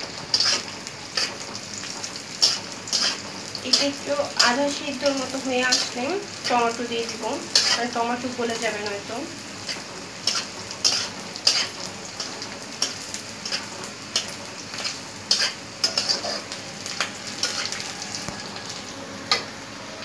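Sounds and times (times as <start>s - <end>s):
utensil scraping against wok: 0.0s - 19.5s
onions sizzling in hot oil: 0.0s - 20.0s.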